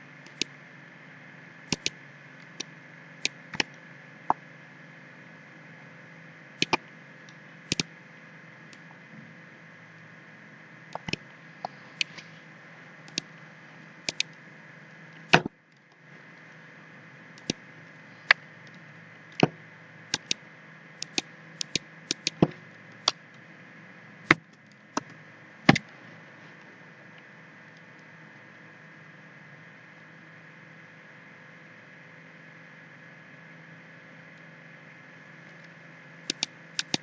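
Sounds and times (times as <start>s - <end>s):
low hum and hiss: 0.0s - 37.0s
computer mouse clicking: 0.2s - 0.5s, 1.7s - 3.8s, 6.6s - 7.9s, 10.9s - 12.3s, 13.1s - 13.3s, 14.0s - 14.4s, 17.4s - 17.6s, 20.1s - 20.4s, 21.0s - 23.2s, 35.5s - 37.0s.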